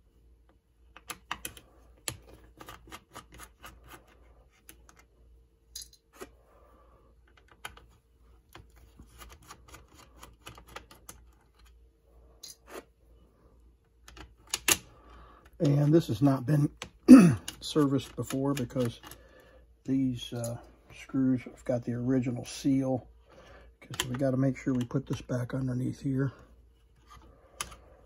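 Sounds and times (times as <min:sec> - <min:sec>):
faint clicks and taps: 0:23.8 - 0:25.3.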